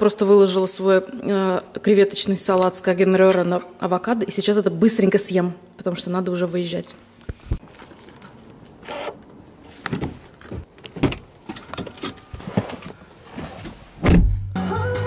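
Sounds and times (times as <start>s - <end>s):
car door shutting thump: 14.0s - 14.4s.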